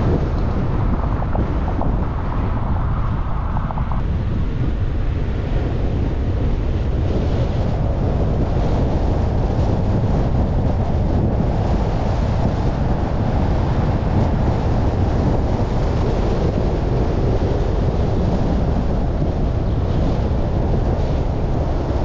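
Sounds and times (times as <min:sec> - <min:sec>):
car tyre and road noise: 0:00.0 - 0:22.0
wind buffeting microphone: 0:00.0 - 0:22.0.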